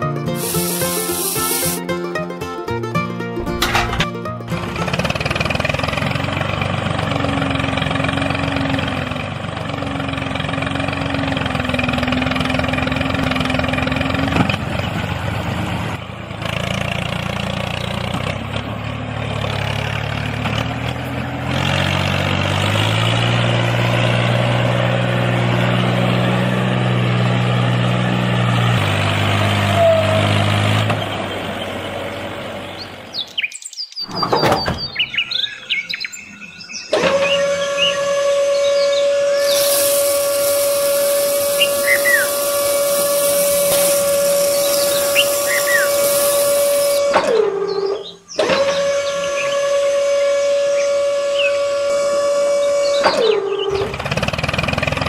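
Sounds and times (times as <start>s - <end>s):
tractor engine running: 0.0s - 33.3s, 36.6s - 55.0s
birds chirping: 31.0s - 47.0s.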